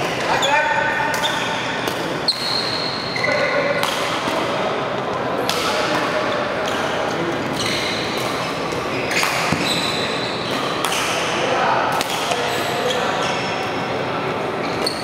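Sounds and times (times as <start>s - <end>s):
sports hall noise: 0.0s - 15.0s
shoe squeaks: 0.3s - 3.7s, 7.5s - 8.2s, 9.0s - 10.8s, 12.4s - 13.5s, 14.6s - 15.0s
racket striking shuttlecock: 3.8s - 4.4s.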